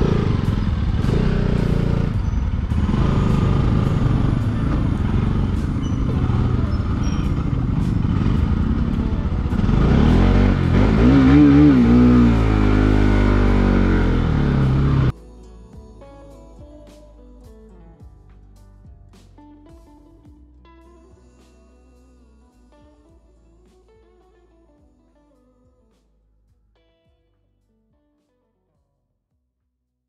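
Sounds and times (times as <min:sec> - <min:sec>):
motorcycle engine running: 0:00.0 - 0:15.1
wind and road noise: 0:00.0 - 0:15.1.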